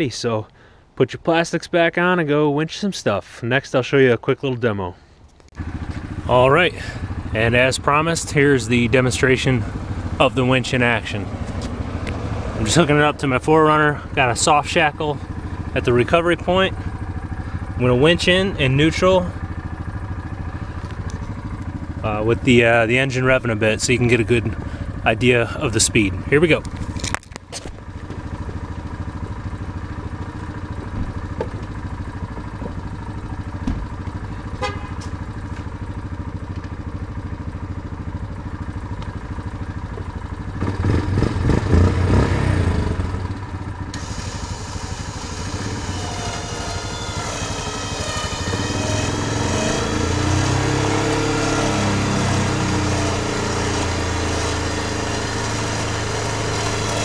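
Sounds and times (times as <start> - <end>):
atv engine running: 5.1 - 57.0
winch whining: 43.9 - 57.0.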